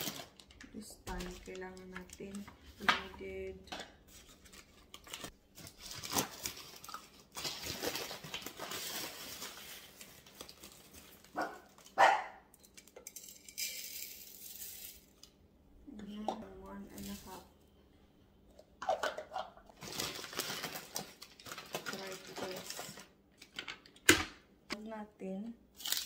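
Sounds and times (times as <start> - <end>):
rustling and handling noise: 0.0 - 15.4, 16.2 - 17.6, 18.4 - 24.0
dog barking: 11.4 - 12.5.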